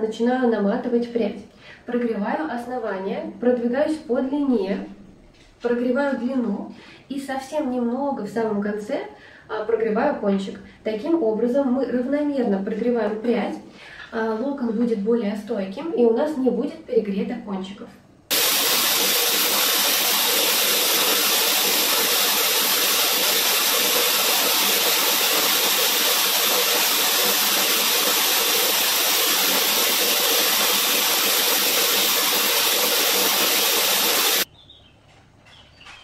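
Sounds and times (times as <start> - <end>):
hot-air styler blowing air: 18.3 - 34.5.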